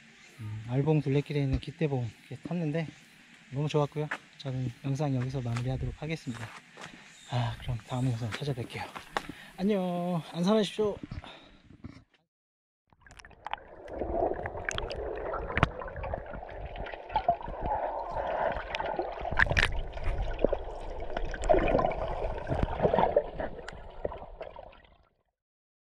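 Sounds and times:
muffled underwater gurgling: 13.8 - 24.7
small underwater clicks: 14.6 - 17.8, 18.6 - 24.5.

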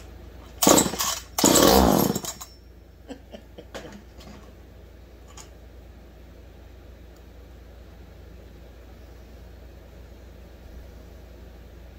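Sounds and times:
chainsaw pull-start cranking: 0.6 - 2.4.

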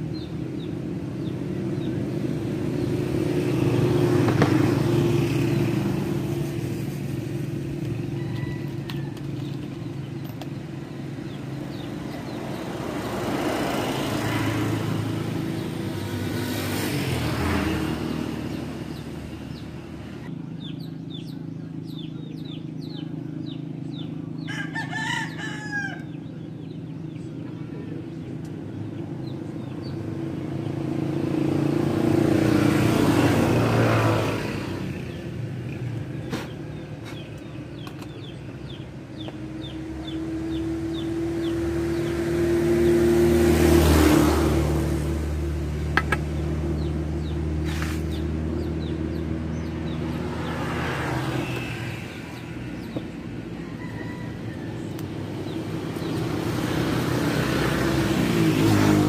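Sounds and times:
small birds chirping: 0.0 - 59.0
vehicles passing: 0.0 - 59.0
rooster crowing: 7.9 - 9.5, 24.4 - 26.2, 53.3 - 55.4.

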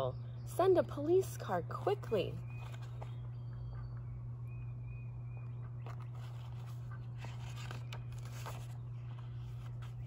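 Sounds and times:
low steady hum: 0.0 - 10.0
book pages turning: 2.5 - 3.3, 5.8 - 10.0.

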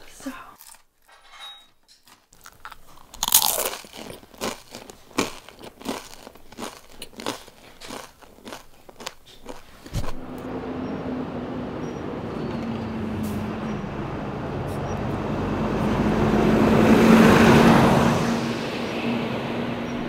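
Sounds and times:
person chewing crunchy food: 0.6 - 0.9, 2.0 - 10.3.

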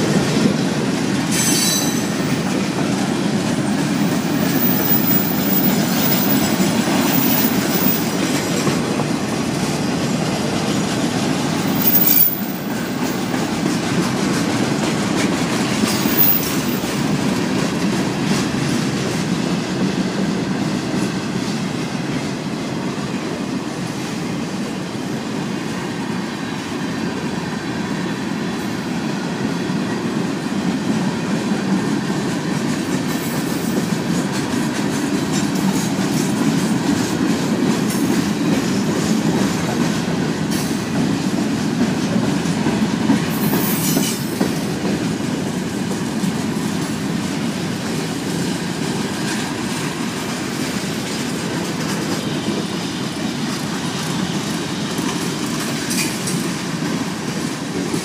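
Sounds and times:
train wheels rumbling on track: 0.0 - 58.0
high-pitched wheel squeals: 1.3 - 2.1.

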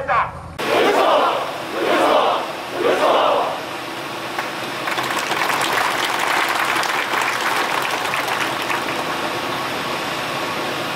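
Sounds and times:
large crowd clapping: 4.3 - 9.8.

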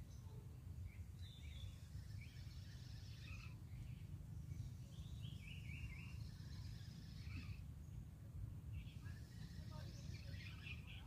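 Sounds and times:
birds chirping: 0.0 - 11.0
low outdoor rumble: 0.0 - 11.0.

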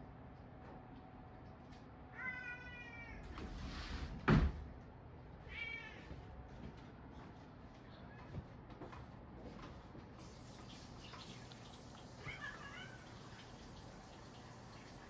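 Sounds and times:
cat meowing: 2.1 - 3.3, 5.5 - 6.1, 12.2 - 13.4.

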